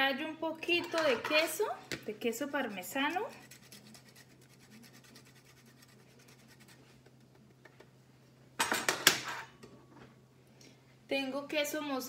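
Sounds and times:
kitchen things clattering: 0.6 - 2.0, 8.6 - 10.1
cheese grater scraping: 3.1 - 6.8.

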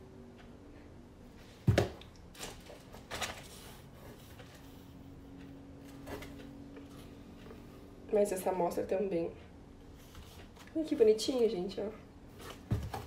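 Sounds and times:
paper rustling: 2.4 - 4.7.

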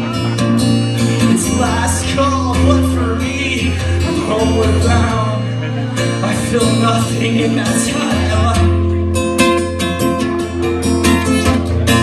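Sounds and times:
person singing: 0.0 - 8.9
acoustic guitar: 0.0 - 12.0.

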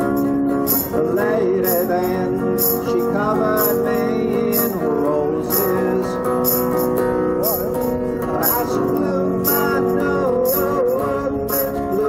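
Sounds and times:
electric guitar country instrumental: 0.0 - 12.0
jingling tambourine beat: 0.0 - 12.0.

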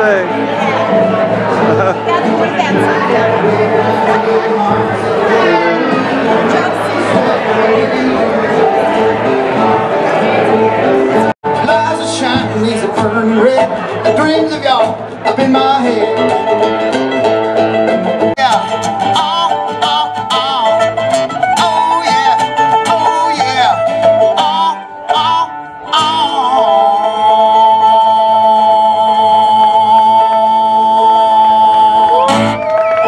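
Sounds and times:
acoustic guitar and mandolin: 0.0 - 32.6
man singing: 2.7 - 9.3, 11.4 - 16.7, 18.3 - 32.6.

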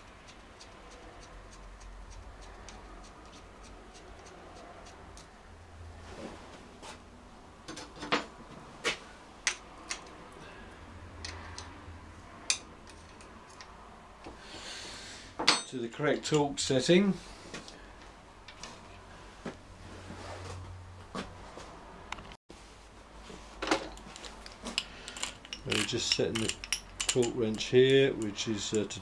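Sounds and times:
spanner clicking on bolts: 24.8 - 29.0.

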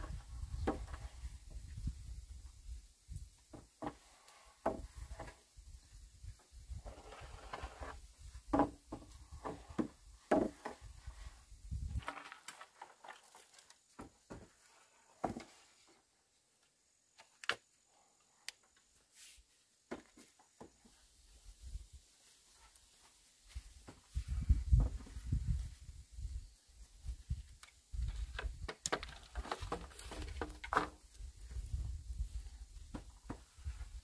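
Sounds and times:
wooden knocks of bamboo: 0.5 - 1.1, 4.6 - 5.4, 8.5 - 10.8.

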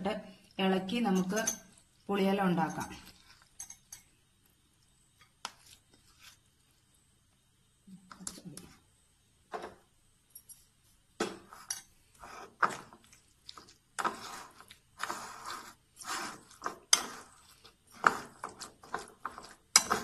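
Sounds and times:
spoon squelching and scraping paste: 1.1 - 7.1, 11.5 - 20.0.

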